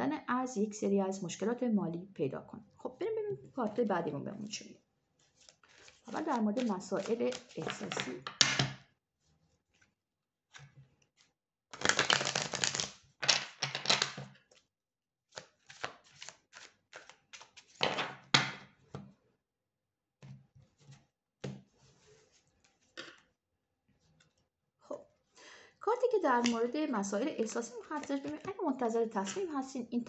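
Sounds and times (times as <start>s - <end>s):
cards being shuffled: 5.4s - 8.7s, 11.7s - 14.6s, 15.4s - 18.2s, 27.5s - 28.5s.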